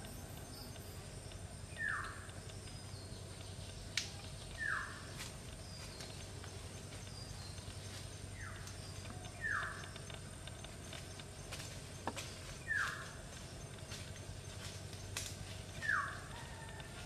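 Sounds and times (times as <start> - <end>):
sharp clicks: 0.0 - 15.4
high insect whine: 0.0 - 17.0.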